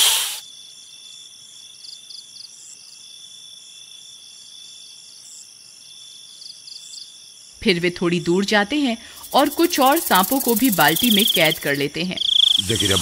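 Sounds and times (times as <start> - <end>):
snake hiss: 0.0 - 0.5, 9.0 - 11.8, 12.4 - 13.0
crickets chirping: 0.0 - 13.0.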